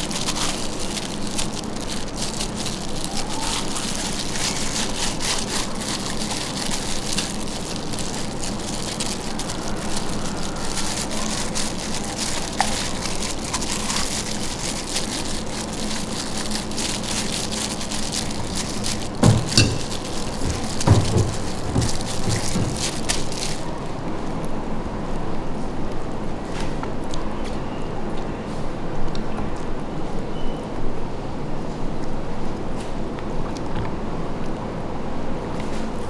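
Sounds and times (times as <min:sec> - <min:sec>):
gloved hands squishing meat: 0:00.0 - 0:24.6.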